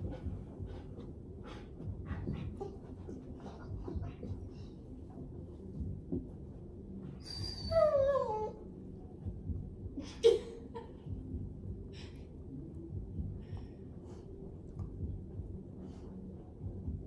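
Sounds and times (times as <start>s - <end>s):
dog breathing: 0.0s - 5.0s
dog whining: 7.2s - 8.6s.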